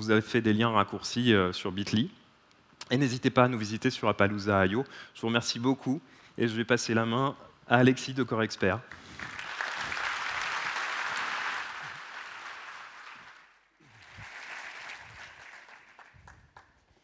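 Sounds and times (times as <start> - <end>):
audience applauding: 8.9 - 17.0.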